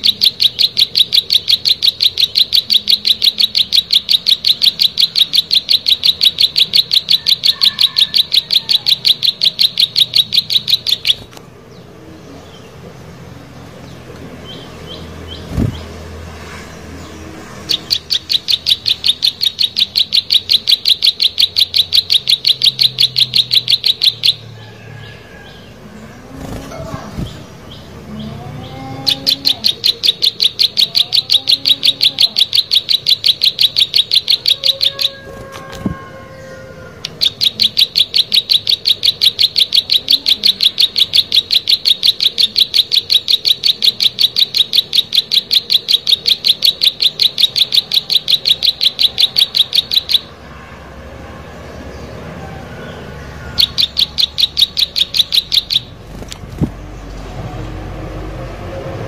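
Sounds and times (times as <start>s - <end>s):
bird singing rapid high note: 0.0s - 11.3s, 16.6s - 24.5s, 53.3s - 56.1s.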